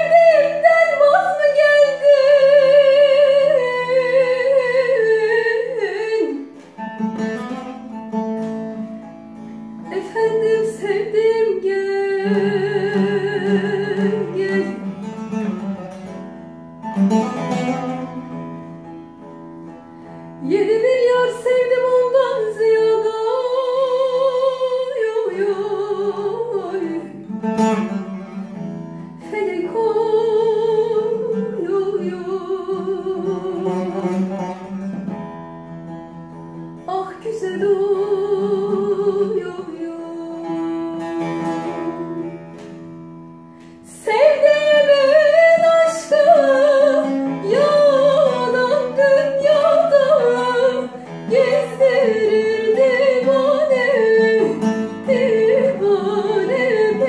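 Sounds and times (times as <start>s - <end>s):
long-necked lute playing: 0.0s - 57.0s
woman singing folk song: 0.0s - 57.0s.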